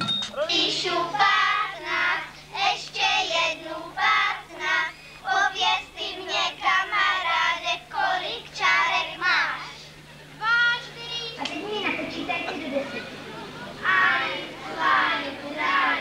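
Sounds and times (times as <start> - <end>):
faint low hum: 0.0 - 16.0
children singing: 0.4 - 4.7, 13.8 - 16.0.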